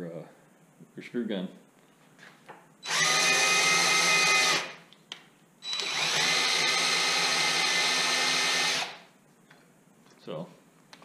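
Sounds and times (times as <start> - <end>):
cordless drill motor whine: 2.8 - 4.8, 5.6 - 9.0.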